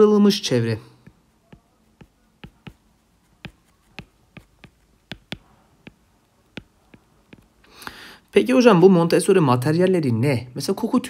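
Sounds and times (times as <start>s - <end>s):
stylus tapping on tablet screen: 1.0s - 7.7s.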